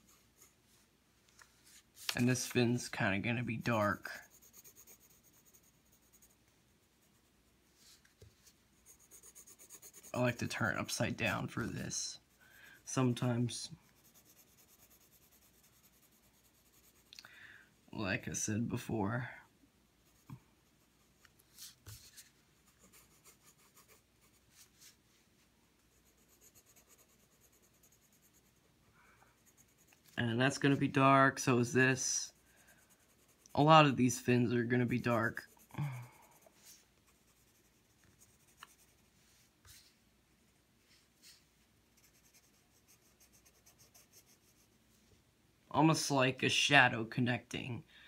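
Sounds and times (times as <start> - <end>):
pencil scratching on paper: 0.0 - 0.6, 3.6 - 8.1, 8.8 - 13.0, 13.8 - 17.1, 20.0 - 25.0, 25.8 - 28.6, 29.3 - 30.8, 32.3 - 39.8, 41.2 - 44.8
paper sheet rustling: 1.4 - 2.6.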